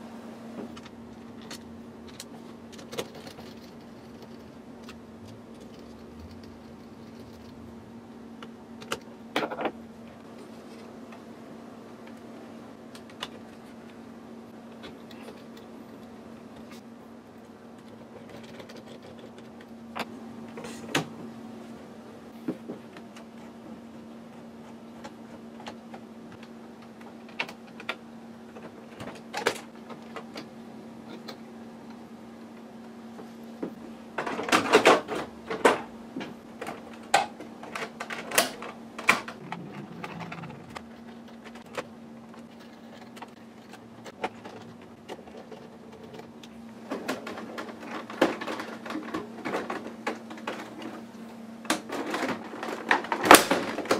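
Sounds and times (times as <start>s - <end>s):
low hum: 38.6s - 46.7s.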